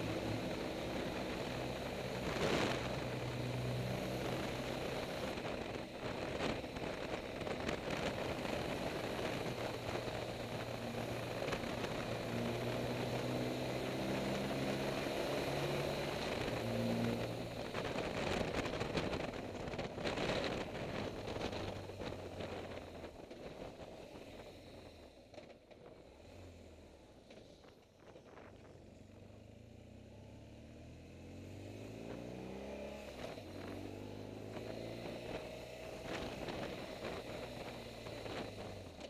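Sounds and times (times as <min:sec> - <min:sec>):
motorcycle engine running: 0:00.0 - 0:39.0
wind noise on microphone: 0:16.2 - 0:23.9.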